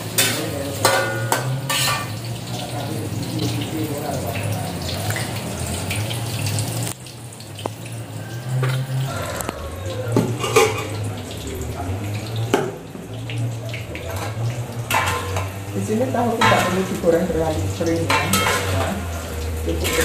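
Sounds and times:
tofu sizzling in hot oil: 0.0 - 20.0.

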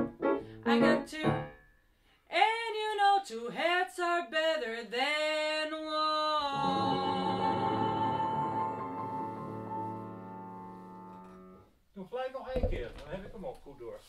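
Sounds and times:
piano: 0.0 - 1.8, 6.5 - 11.6
woman singing jazz: 0.6 - 1.6, 2.3 - 9.7.

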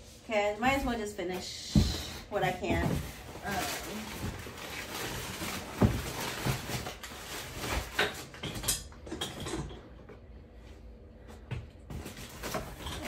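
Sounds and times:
packing paper rustling: 2.2 - 8.4.

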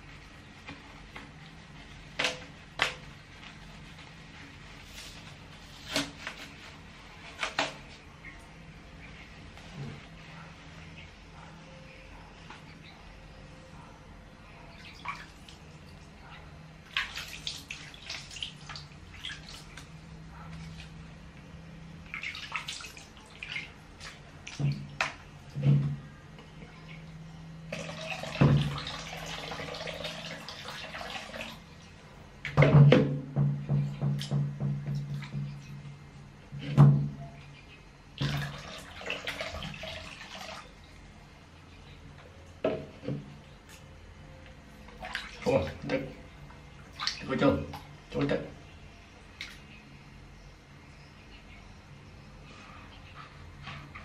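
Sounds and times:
low steady hum: 0.0 - 54.0
water dripping: 14.7 - 21.0, 44.9 - 48.4
water splashing: 16.8 - 21.0, 22.0 - 25.3, 38.2 - 40.8, 44.9 - 46.2, 46.8 - 48.4.

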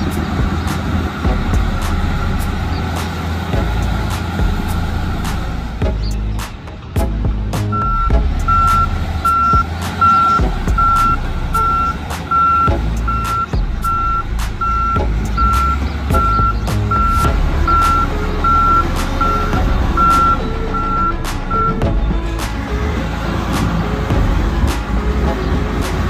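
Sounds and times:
diesel engine running: 0.0 - 26.0
backup alarm beeping: 7.7 - 21.8.

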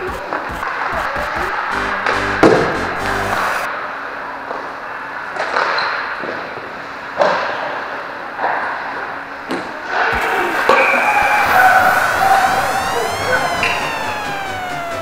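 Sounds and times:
steady pitched tone: 0.0 - 3.7, 10.1 - 15.0.

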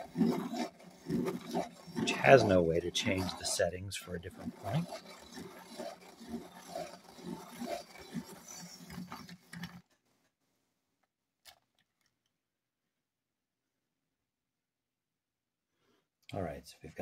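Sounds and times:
pencil sharpener grinding: 0.0 - 9.9.

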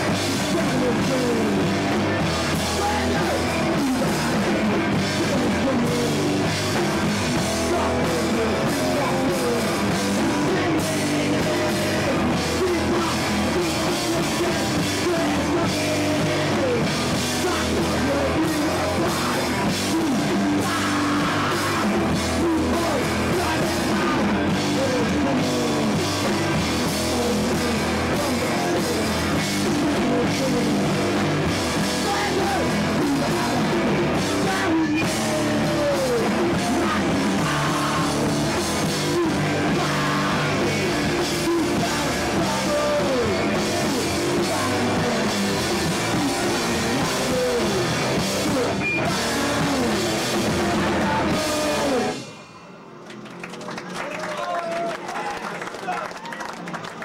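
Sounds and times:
lead vocal singing: 0.0 - 52.4
drum kit: 0.0 - 54.0
distorted electric guitar: 0.0 - 55.2
bass guitar: 0.0 - 57.0.

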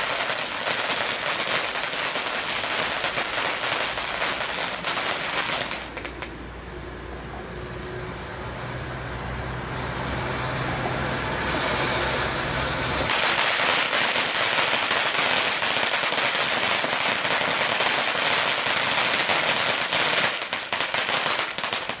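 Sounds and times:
sharp crackling pops: 0.0 - 6.4
firework fountain hissing and crackling: 0.0 - 22.0.

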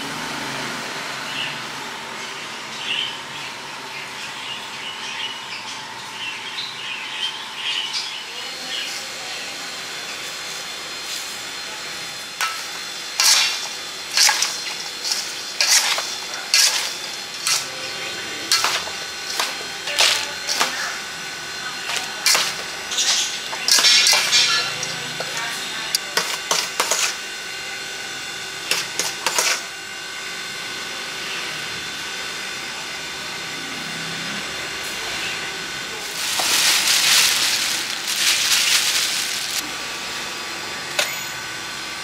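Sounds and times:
fruit rustling and rattling in basket: 36.0 - 39.7.

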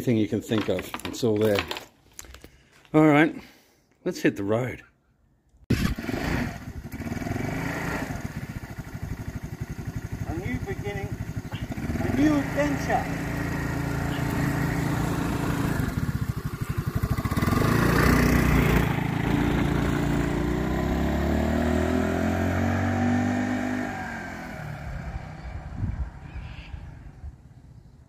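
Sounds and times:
scooter engine accelerating: 5.7 - 26.2.

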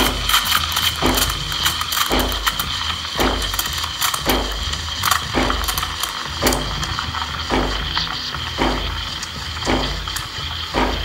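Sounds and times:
machine rattling and clicking: 0.0 - 11.0
steam wand hissing: 0.0 - 11.0.

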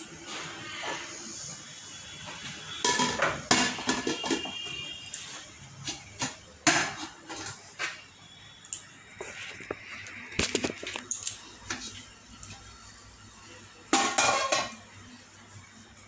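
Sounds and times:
metal pots and pans clanking: 2.8 - 4.7, 5.9 - 8.0, 13.9 - 14.8.

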